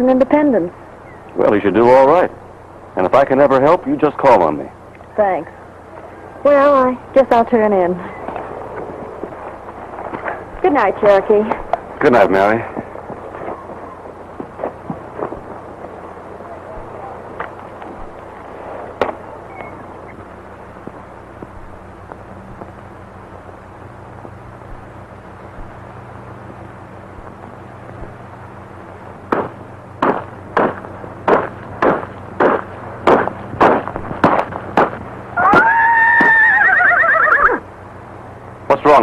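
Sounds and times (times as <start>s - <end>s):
low soundtrack hum: 0.0s - 35.7s
horse hooves clopping: 12.6s - 22.9s
horse whinny: 35.4s - 37.6s.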